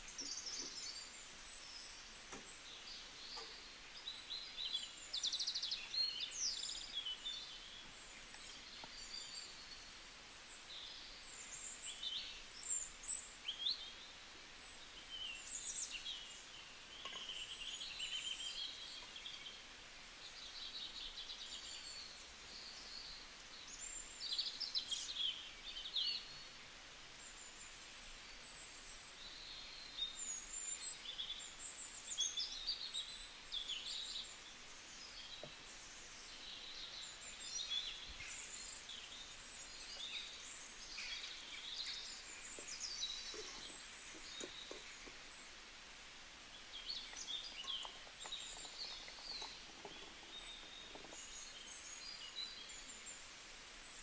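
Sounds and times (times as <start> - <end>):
faint hiss: 0.0 - 54.0
birds chirping and trilling: 14.8 - 26.6, 29.2 - 54.0.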